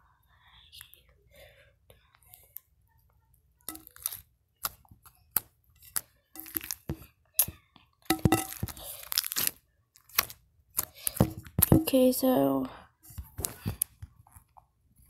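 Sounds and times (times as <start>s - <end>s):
crackling and crunching: 3.6s - 12.1s.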